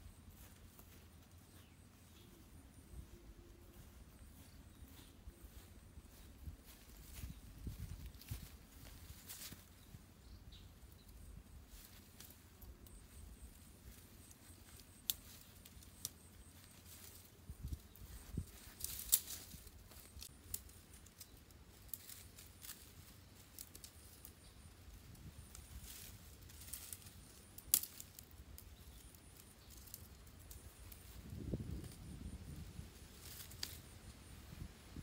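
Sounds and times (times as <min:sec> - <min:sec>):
sticks clicking and rustling: 0:14.2 - 0:24.4, 0:25.4 - 0:31.2, 0:33.2 - 0:33.9
sticks cracking: 0:26.6 - 0:28.3.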